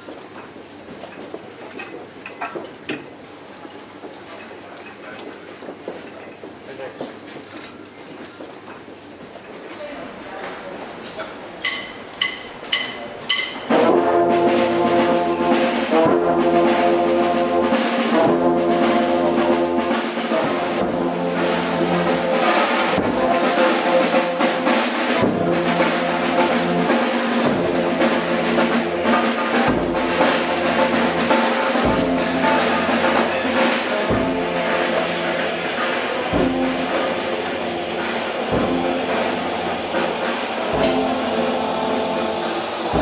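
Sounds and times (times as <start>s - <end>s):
brass band playing chords: 13.6s - 43.0s.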